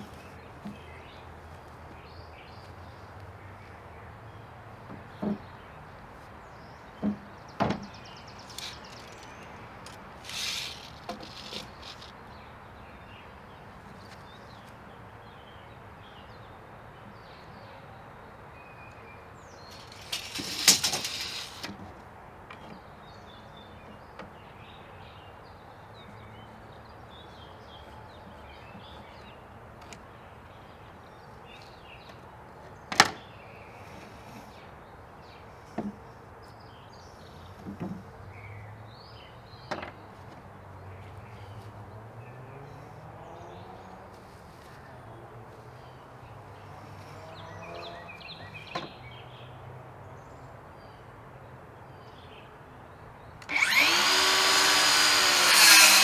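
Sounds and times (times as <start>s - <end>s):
wood and tools knocking on deck: 4.9s - 5.5s, 7.0s - 7.9s, 39.7s - 40.0s
rattling burst: 19.8s - 21.7s.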